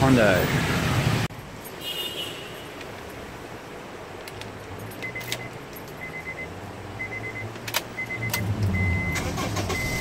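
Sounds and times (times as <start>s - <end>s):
car warning chime beeping: 5.0s - 10.0s.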